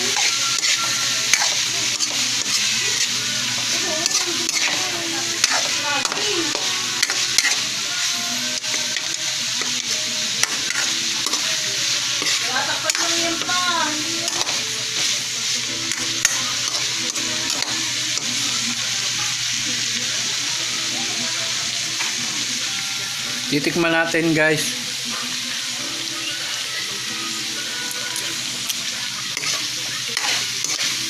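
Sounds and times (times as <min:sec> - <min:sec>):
spoon scraping pan: 0:00.0 - 0:18.4
vegetables sizzling in oil: 0:00.0 - 0:31.0.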